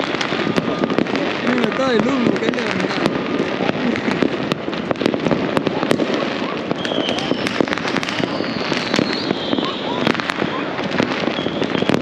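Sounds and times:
fireworks popping and banging: 0.0s - 12.0s
high firework whistle: 5.8s - 12.0s.

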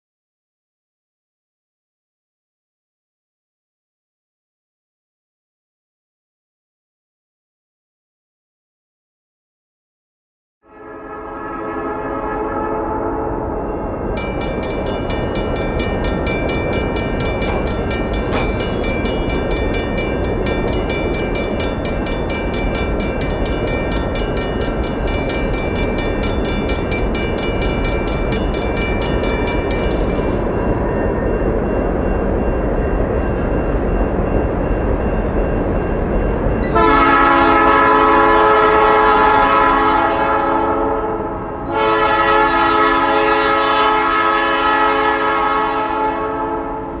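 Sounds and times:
locomotive horn: 10.6s - 13.6s, 36.7s - 47.0s
crossing bell ringing: 13.4s - 40.0s.

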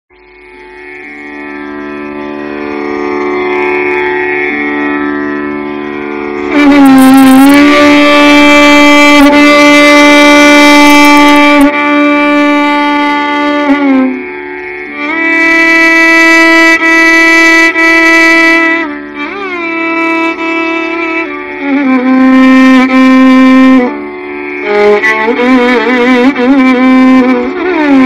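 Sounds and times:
violin playing held notes: 0.3s - 28.0s.

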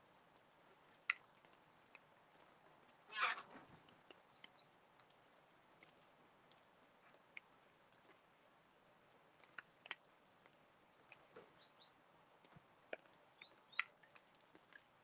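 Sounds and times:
small bird chirping: 4.3s - 4.7s, 11.3s - 12.0s, 13.0s - 14.0s.

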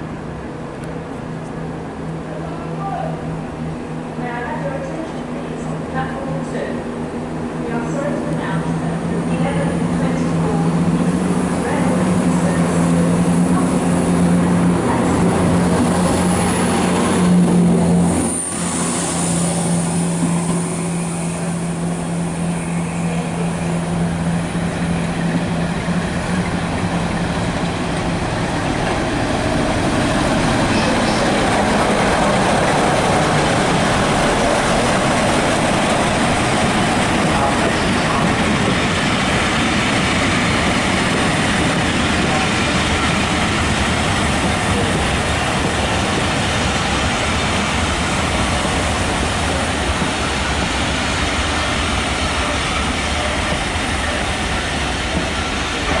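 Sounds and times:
diesel locomotive engine: 0.0s - 56.0s
coach wheels rolling on rails: 23.0s - 56.0s.

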